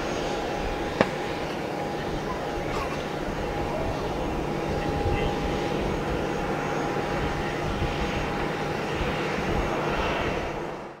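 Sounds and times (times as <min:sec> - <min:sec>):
jet engines rumbling and whining: 0:00.0 - 0:11.0.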